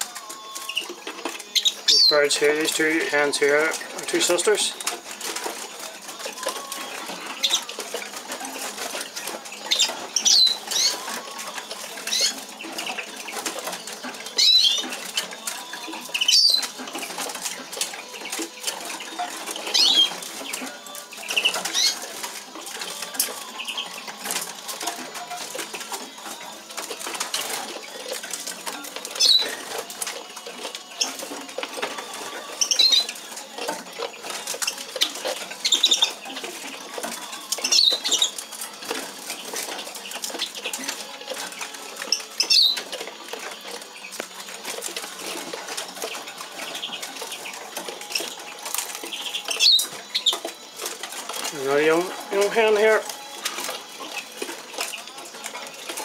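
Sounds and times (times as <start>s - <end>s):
bird feet clicking on perches: 0.0s - 56.0s
high bird chirps: 9.6s - 11.0s, 14.4s - 14.9s, 16.1s - 16.7s, 19.6s - 20.2s, 42.4s - 42.8s.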